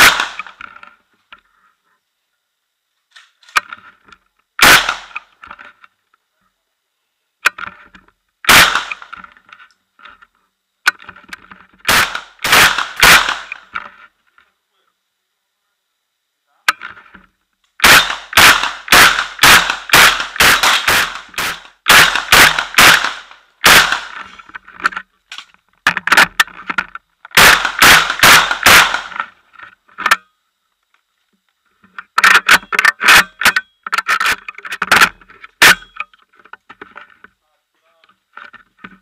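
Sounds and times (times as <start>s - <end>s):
gunshots: 0.0s - 0.6s, 4.6s - 5.3s, 8.4s - 9.2s, 11.8s - 13.7s, 17.8s - 24.4s, 27.3s - 29.3s.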